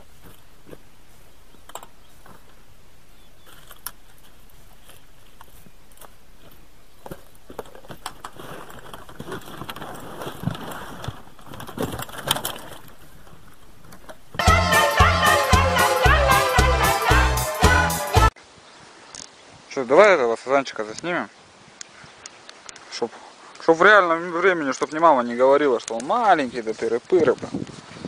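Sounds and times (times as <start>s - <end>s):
fishing gear clicking and knocking: 7.0s - 14.4s.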